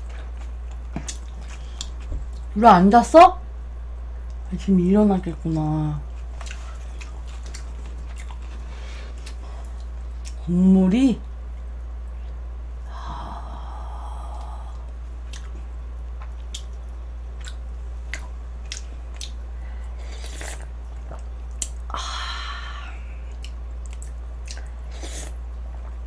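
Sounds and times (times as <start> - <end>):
wet chewing: 0.0 - 2.5, 6.1 - 10.4, 14.8 - 16.8, 17.4 - 19.4, 23.3 - 26.0
slurping noodle broth: 24.9 - 25.4.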